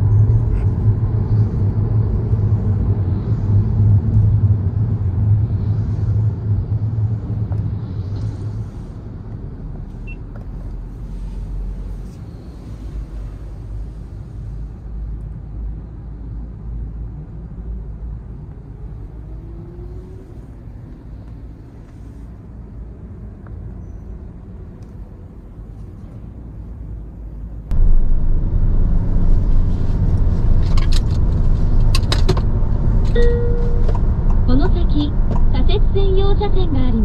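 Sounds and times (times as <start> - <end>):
car cabin road rumble: 0.0 - 14.9, 18.1 - 37.0
faint rising whine: 27.7 - 31.5.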